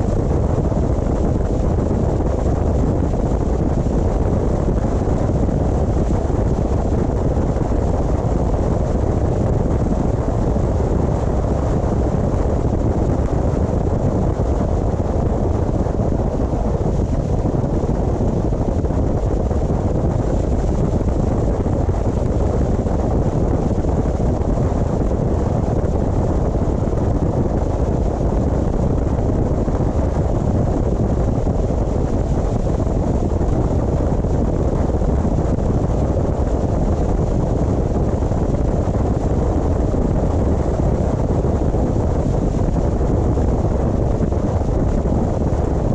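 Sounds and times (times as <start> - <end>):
car tyre and wind rumble: 0.0 - 45.9.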